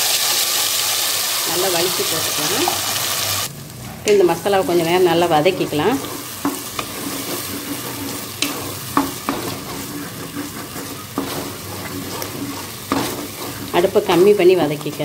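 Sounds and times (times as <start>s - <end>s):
paste sizzling in hot oil: 0.0s - 3.5s, 4.4s - 15.0s
spatula knocking on pot: 8.4s - 13.6s.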